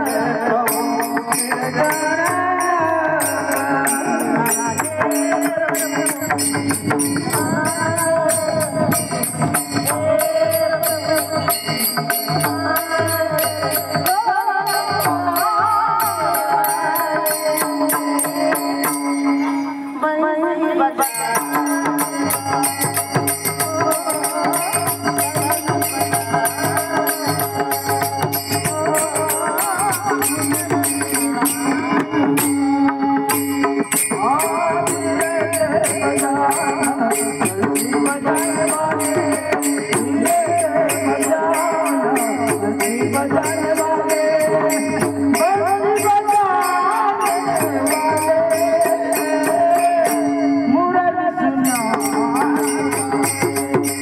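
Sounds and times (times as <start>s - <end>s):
fast percussion beat: 0.0s - 19.8s, 21.0s - 50.8s, 51.6s - 54.0s.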